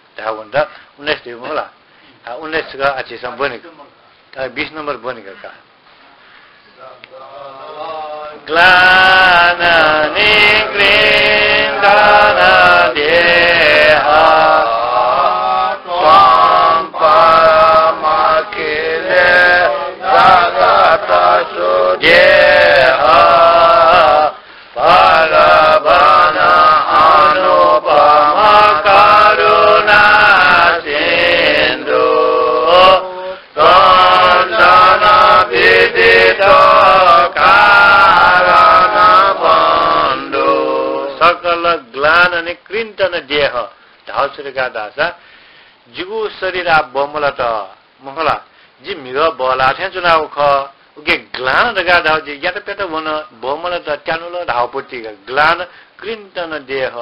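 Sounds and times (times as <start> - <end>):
man chanting: 38.0 - 45.2, 45.9 - 57.0.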